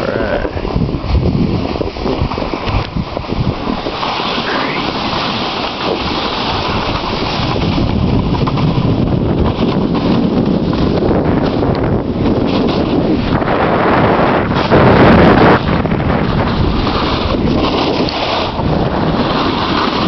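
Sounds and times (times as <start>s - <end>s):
scraping hiss of sliding on snow: 0.0s - 8.7s, 16.4s - 20.0s
wind buffeting microphone: 0.0s - 20.0s.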